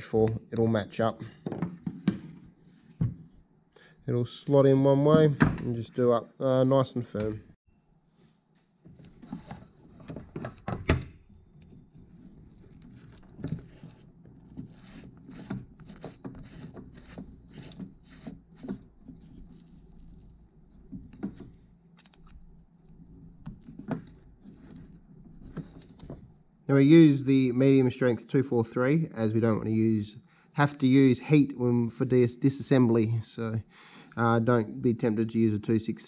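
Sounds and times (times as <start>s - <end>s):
hex keys clicking on metal bolt: 22.0s - 22.5s.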